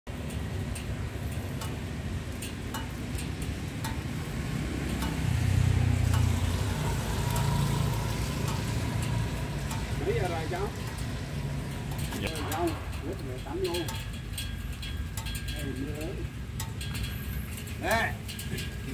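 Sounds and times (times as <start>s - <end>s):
rain on a wet street: 0.1s - 18.9s
raindrops ticking near microphone: 0.1s - 18.9s
motorbike engine passing: 3.3s - 14.7s.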